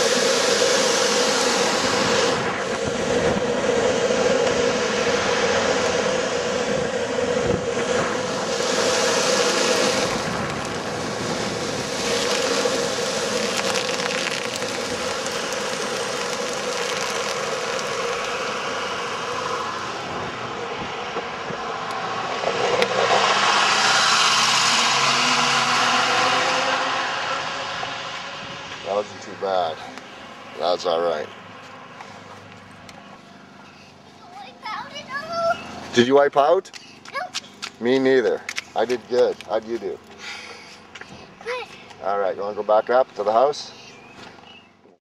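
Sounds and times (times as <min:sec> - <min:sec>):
skateboard wheels rolling on asphalt: 0:00.0 - 0:29.0.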